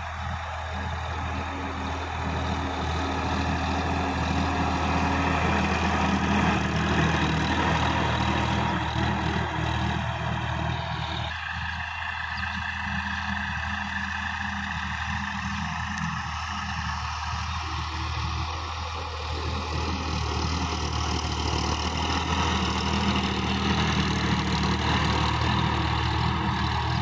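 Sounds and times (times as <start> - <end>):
tractor diesel engine running: 0.0 - 27.0.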